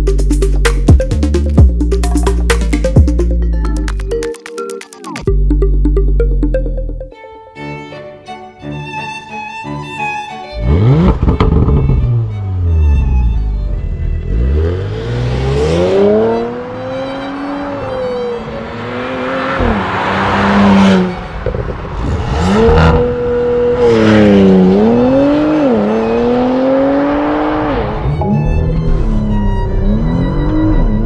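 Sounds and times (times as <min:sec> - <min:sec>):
car engine accelerating hard: 0:10.5 - 0:31.0.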